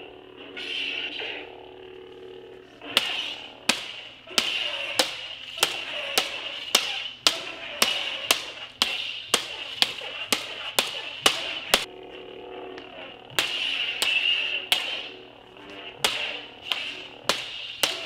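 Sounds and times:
plastic blades clashing: 2.9s - 11.9s, 13.3s - 15.2s, 15.9s - 18.0s.

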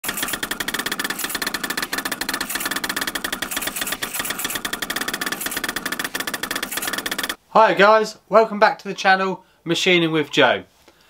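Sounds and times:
printer stepper motors whirring: 0.0s - 7.4s.

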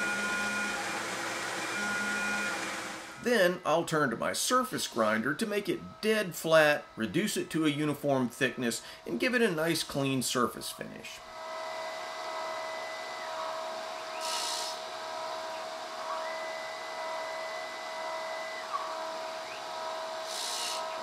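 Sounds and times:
grinding wheel hissing across steel: 0.0s - 3.3s, 11.2s - 21.0s
surface grinder motor humming: 0.0s - 3.3s.

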